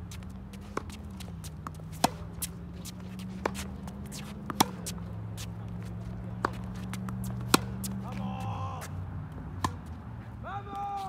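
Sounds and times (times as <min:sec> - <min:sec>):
sneaker footsteps shuffling: 0:00.0 - 0:09.0
tennis racket hitting ball: 0:00.5 - 0:08.9, 0:09.6 - 0:09.9.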